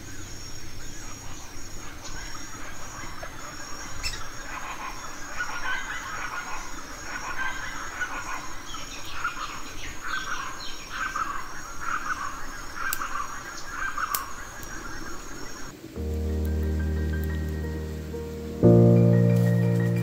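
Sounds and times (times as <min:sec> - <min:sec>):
birds calling: 0:00.0 - 0:20.0
music with low note: 0:15.8 - 0:20.0.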